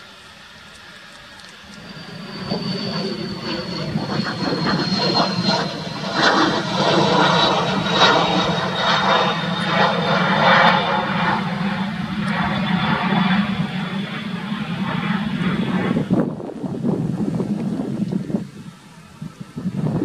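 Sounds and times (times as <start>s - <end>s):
jet engines rushing: 0.0s - 20.0s.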